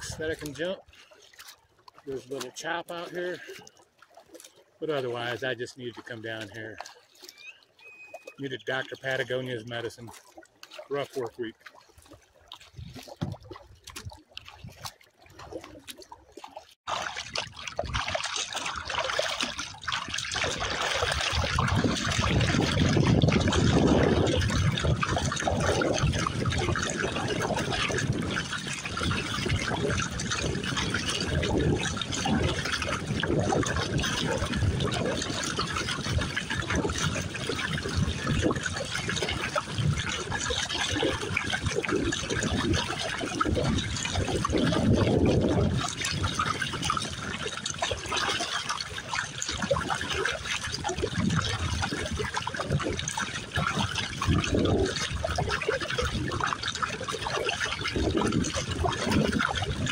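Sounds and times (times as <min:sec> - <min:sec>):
paddle blades dipping: 0:00.0 - 0:59.9
water splashing around a kayak: 0:00.0 - 0:59.9.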